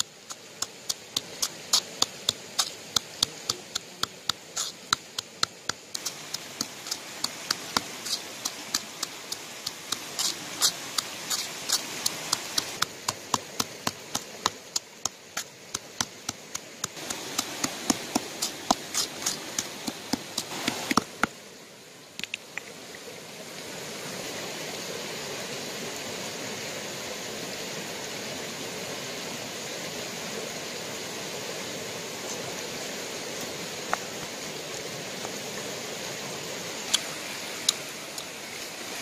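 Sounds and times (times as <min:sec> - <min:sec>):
pestle pounding in a bowl: 0:00.0 - 0:21.3
stream rushing: 0:00.0 - 0:39.0.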